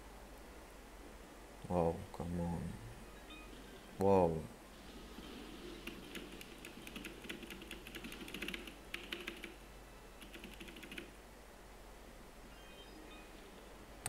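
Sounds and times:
keyboard typing clatter: 5.8s - 9.6s, 10.2s - 11.1s.

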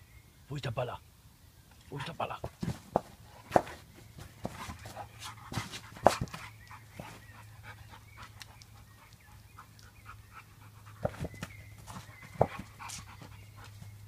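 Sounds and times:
dog panting: 4.5s - 14.0s.

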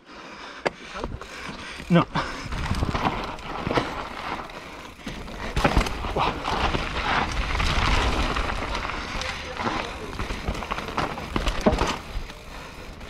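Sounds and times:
bike tyres on loose dirt: 0.1s - 13.0s
bike frame and chain clicks: 1.0s - 13.0s
wind rumbling on microphone: 2.4s - 3.8s.

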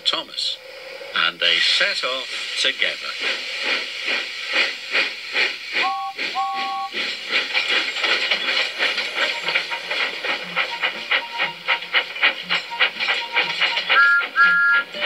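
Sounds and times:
steam locomotive chuffing: 0.0s - 15.0s.

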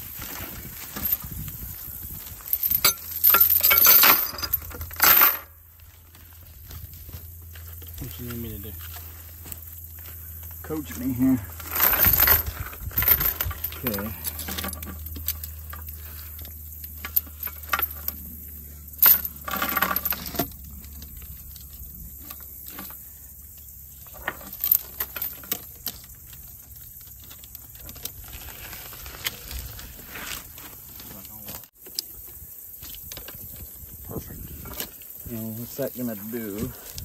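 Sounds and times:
steel chain clinking on wheel rim: 0.3s - 5.6s, 9.6s - 29.5s.

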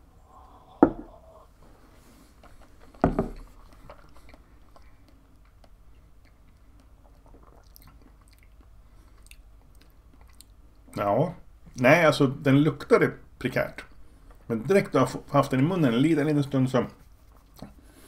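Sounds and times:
wet mouth sounds: 3.6s - 10.6s.

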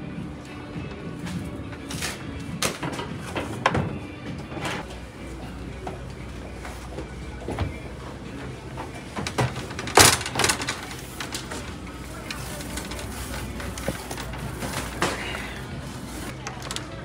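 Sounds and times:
trash can clattering: 8.7s - 11.8s.

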